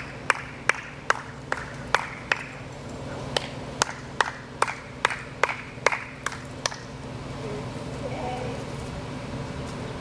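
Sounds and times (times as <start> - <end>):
hands clapping: 0.0 - 2.6, 3.3 - 6.9.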